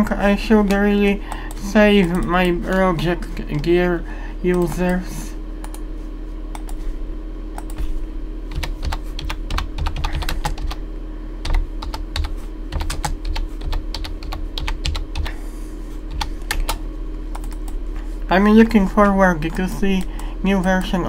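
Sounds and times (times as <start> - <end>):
low electrical hum: 0.0 - 21.0
keyboard typing: 6.5 - 6.8, 8.5 - 10.8, 11.4 - 15.4, 16.1 - 17.8.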